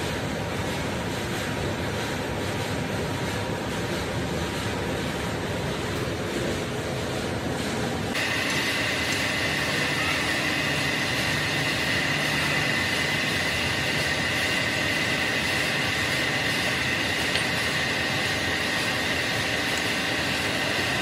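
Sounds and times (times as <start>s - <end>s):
lathe mechanical drone: 0.0s - 21.0s
high-pitched drill whine: 8.2s - 21.0s.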